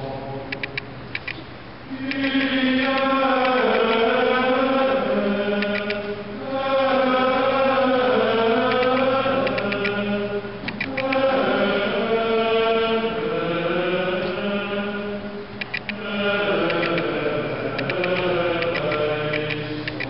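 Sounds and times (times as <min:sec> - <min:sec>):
bright high clicks: 0:00.5 - 0:01.4, 0:02.0 - 0:04.0, 0:05.5 - 0:06.1, 0:08.7 - 0:10.0, 0:10.7 - 0:11.3, 0:15.6 - 0:16.0, 0:16.6 - 0:17.1, 0:17.8 - 0:20.0
voices singing plainchant: 0:01.7 - 0:20.0.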